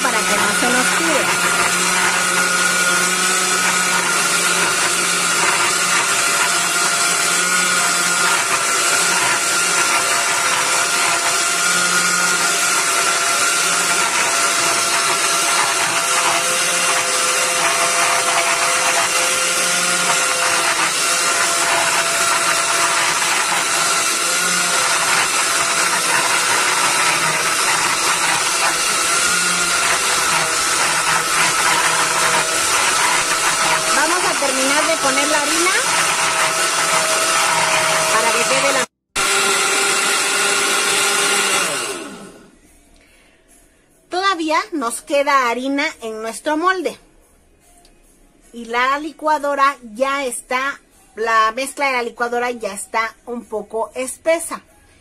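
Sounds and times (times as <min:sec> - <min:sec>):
blender motor whining: 0:00.0 - 0:42.6.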